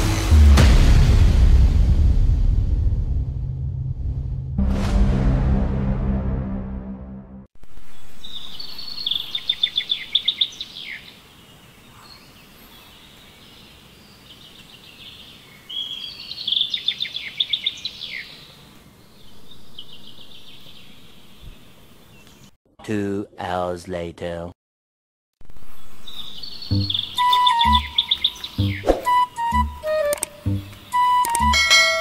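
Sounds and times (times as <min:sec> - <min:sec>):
intro music: 0:00.0 - 0:07.5, 0:26.7 - 0:32.0
faint outdoor background noise: 0:07.6 - 0:24.5
bird singing trilled notes: 0:07.9 - 0:11.2, 0:25.7 - 0:32.0.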